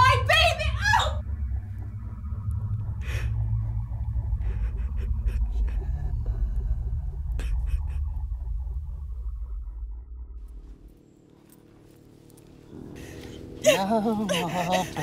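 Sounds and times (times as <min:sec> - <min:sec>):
steady low drone: 0:00.2 - 0:15.0
woman sobbing: 0:13.6 - 0:15.0.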